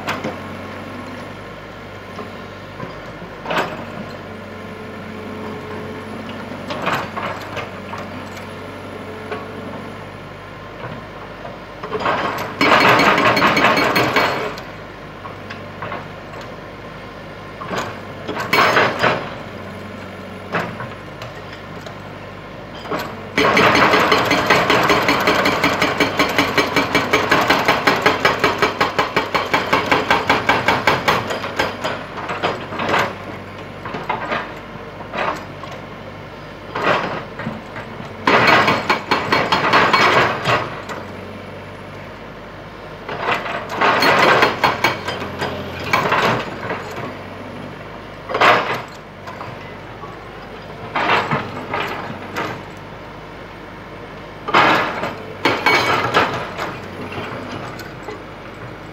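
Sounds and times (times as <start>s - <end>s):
excavator engine running: 0.0s - 58.9s
hydraulic breaker hammering rock: 11.8s - 14.7s, 17.6s - 21.8s, 22.8s - 35.8s, 36.7s - 41.2s, 43.1s - 47.5s, 54.4s - 58.9s.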